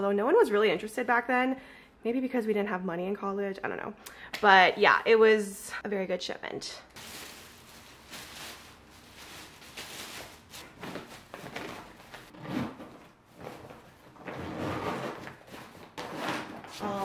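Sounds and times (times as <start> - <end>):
plastic bags rustling and crinkling: 7.0 - 12.3.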